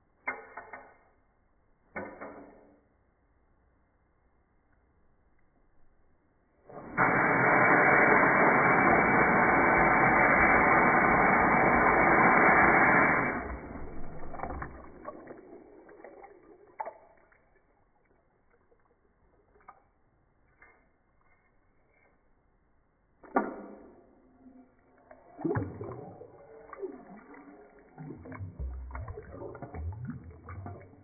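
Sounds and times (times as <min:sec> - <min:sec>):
water trickling and dripping: 0:13.4 - 0:21.4, 0:24.2 - 0:31.0.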